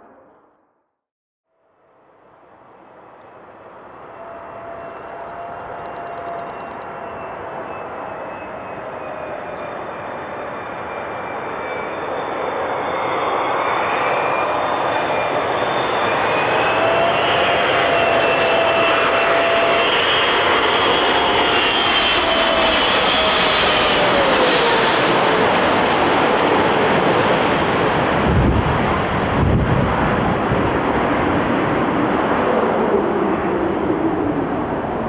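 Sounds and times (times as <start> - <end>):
jet airliner passing overhead: 19.4 - 24.9.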